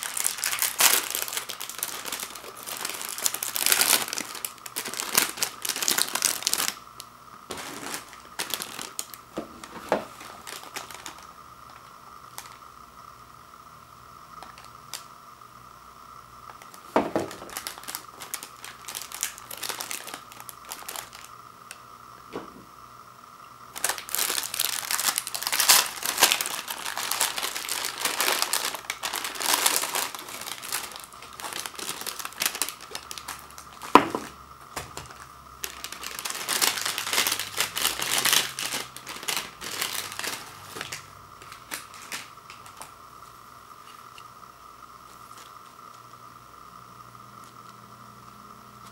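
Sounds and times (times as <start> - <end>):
plastic sleeve crinkling: 0.0 - 12.6, 16.5 - 21.3, 23.7 - 43.0.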